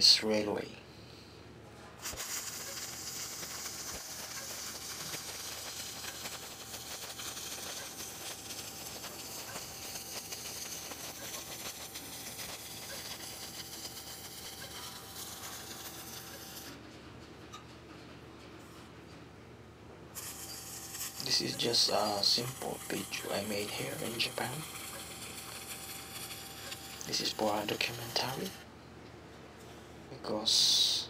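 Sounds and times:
welding arc crackling hiss: 2.0s - 16.8s, 20.2s - 28.7s.

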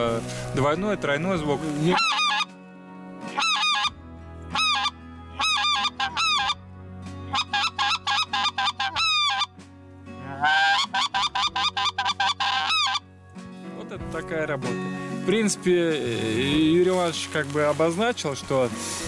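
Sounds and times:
goose call honks: 1.9s - 2.5s, 3.3s - 6.6s, 7.3s - 9.5s, 10.2s - 13.0s.

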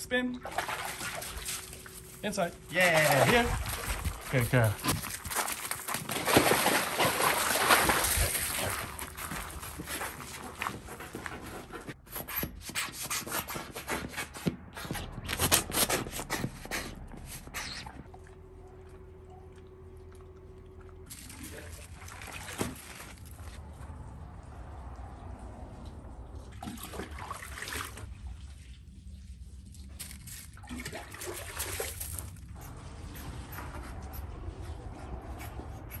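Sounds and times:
footsteps crunching on gravel: 3.0s - 6.3s, 7.9s - 10.9s
faint steady hum: 16.6s - 21.2s.

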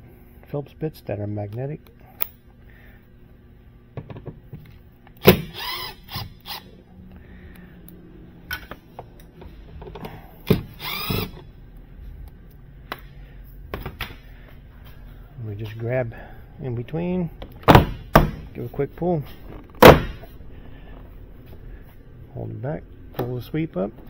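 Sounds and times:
cordless driver motor whir: 5.2s - 6.7s, 10.6s - 11.5s.

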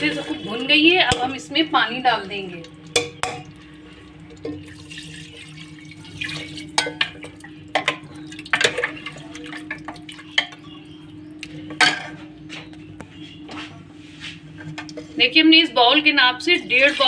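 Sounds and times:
metal ladle knocking pot: 0.3s - 1.5s, 2.6s - 3.7s, 6.7s - 9.0s
water pouring and splashing: 2.7s - 10.7s.

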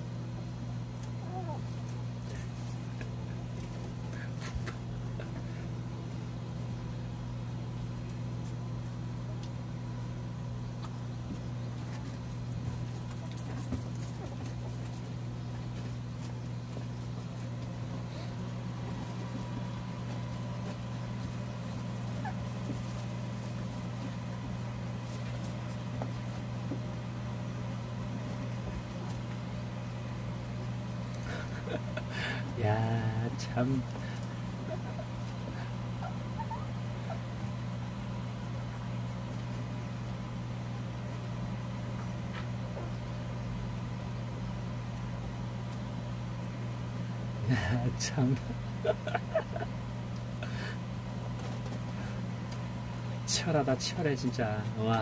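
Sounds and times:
electric fan humming: 0.0s - 55.0s
puppies suckling squeaks: 36.0s - 37.3s.

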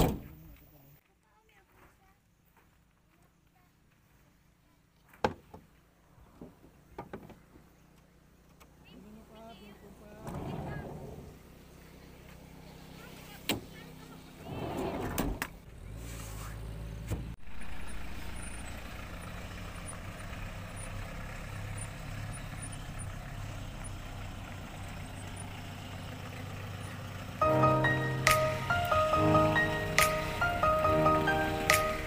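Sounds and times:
van engine running: 5.7s - 32.0s
music: 27.4s - 32.0s.

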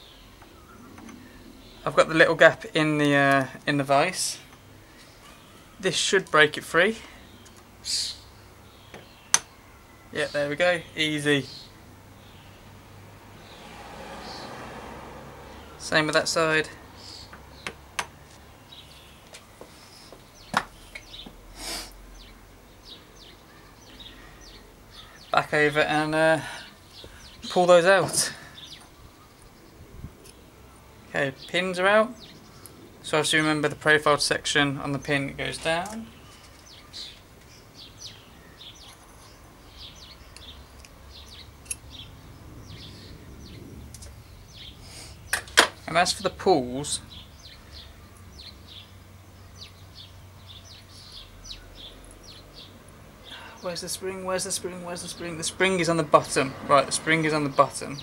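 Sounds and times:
small birds chirping: 0.0s - 58.0s
sharp metallic clicks and taps: 40.3s - 41.0s.

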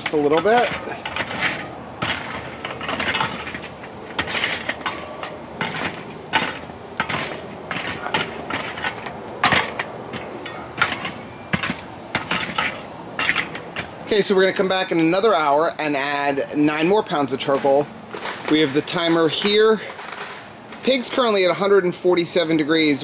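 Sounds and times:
briquettes clattering: 0.0s - 14.8s
metal rake scraping charcoal: 0.0s - 21.5s.

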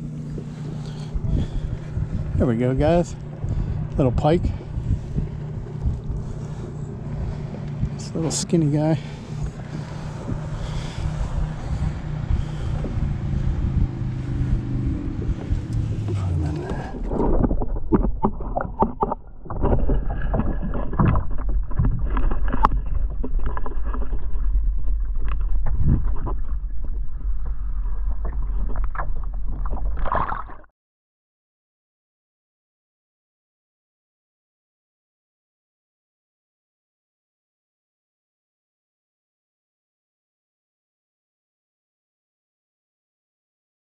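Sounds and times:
deep underwater rumble: 0.0s - 30.7s
muffled underwater water rushing: 0.0s - 30.7s
water lapping on kayak: 0.0s - 30.7s
wind: 0.0s - 30.7s.

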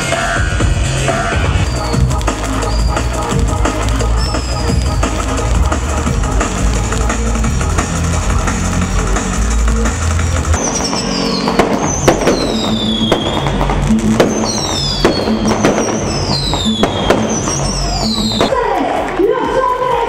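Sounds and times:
firework bangs and crackling: 0.0s - 18.8s
whistling fireworks: 1.2s - 6.8s, 10.6s - 18.6s.

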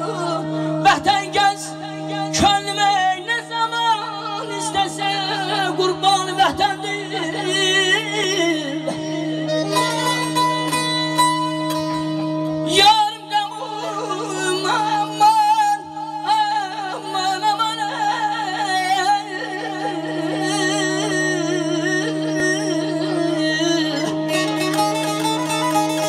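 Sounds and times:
man singing wordless melody: 0.0s - 10.5s, 12.7s - 24.7s
keyboard accompaniment: 0.0s - 26.0s
saz playing: 19.5s - 26.0s.

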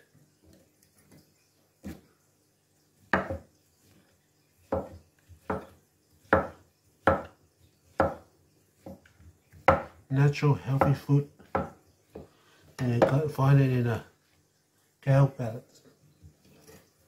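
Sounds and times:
cleaver chopping on wooden board: 3.1s - 3.5s, 4.7s - 7.4s, 8.0s - 8.2s, 9.6s - 10.0s, 10.8s - 12.3s.

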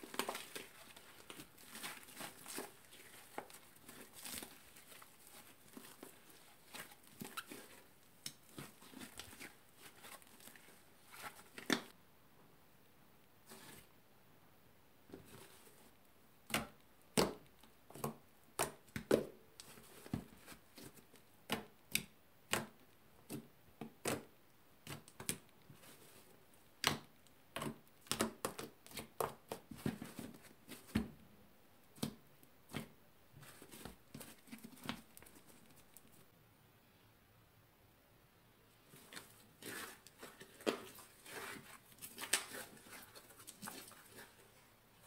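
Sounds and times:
slime kneaded by hand: 0.0s - 12.0s, 38.8s - 45.0s.

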